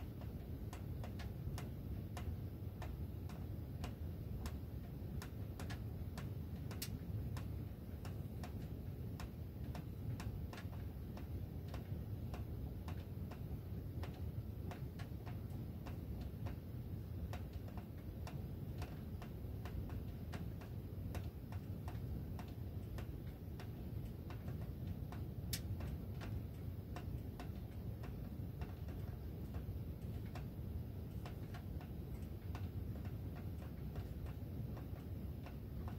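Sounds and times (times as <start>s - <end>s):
metal ductwork ticking: 0.0s - 35.9s
steady low rumble: 0.0s - 35.9s.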